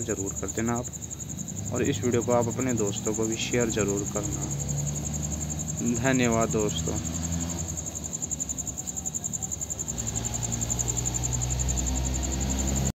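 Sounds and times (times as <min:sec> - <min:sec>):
insects trilling: 0:00.0 - 0:12.9.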